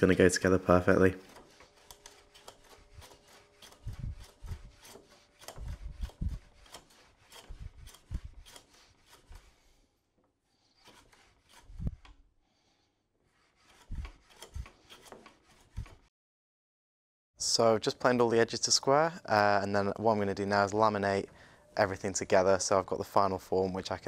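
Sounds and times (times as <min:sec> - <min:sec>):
hand plane shaving wood: 0:00.0 - 0:16.1.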